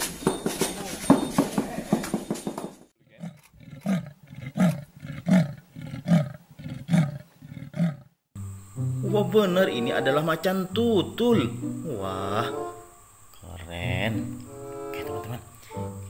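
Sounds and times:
knocks: 0.0 - 2.9
leopard rasping grunts: 3.0 - 8.1.

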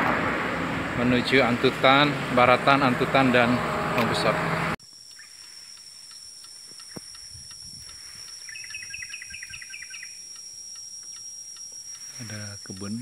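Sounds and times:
high-pitched insect drone: 1.0 - 13.0
quick insect chirps: 4.8 - 13.0.

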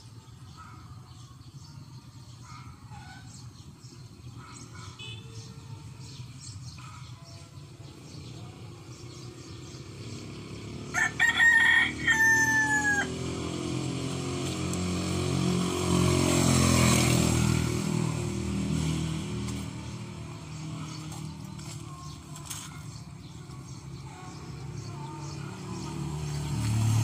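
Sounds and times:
rooster crowing: 10.9 - 13.4.

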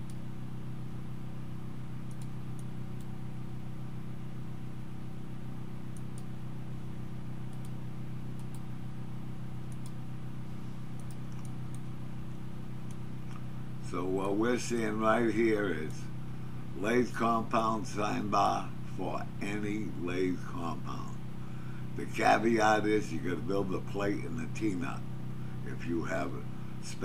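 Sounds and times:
steady low hum: 0.0 - 27.0
faint computer mouse clicks: 2.0 - 3.2, 5.9 - 6.3, 7.5 - 8.7, 9.7 - 10.0, 10.9 - 11.9.

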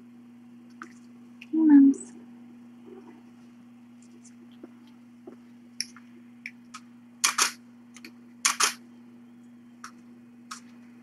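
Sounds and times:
steady electrical hum: 0.0 - 11.0
camera shutter clicking: 8.5 - 8.8.

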